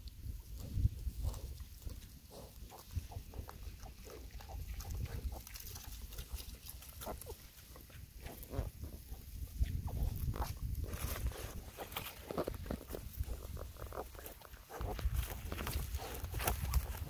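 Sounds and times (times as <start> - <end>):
piglets grunting and squeaking: 2.3 - 10.2, 11.8 - 17.0.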